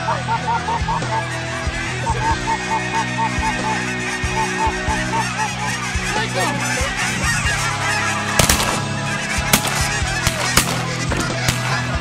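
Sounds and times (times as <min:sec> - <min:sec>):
geese honking: 0:00.0 - 0:12.0
shotgun shot: 0:08.4 - 0:08.8, 0:09.5 - 0:11.8.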